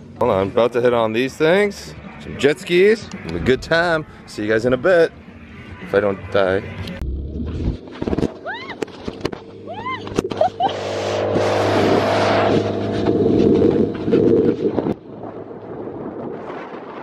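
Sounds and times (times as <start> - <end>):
jet ski running: 4.9 - 16.4
motorboat engine hum: 4.9 - 17.0
rising and falling cries: 8.2 - 12.5.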